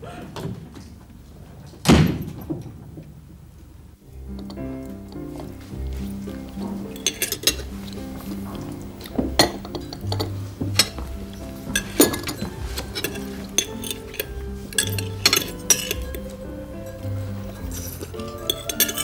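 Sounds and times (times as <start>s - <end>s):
background music: 4.0s - 19.0s
cutlery clinking on a plate: 4.4s - 16.3s, 17.5s - 19.0s.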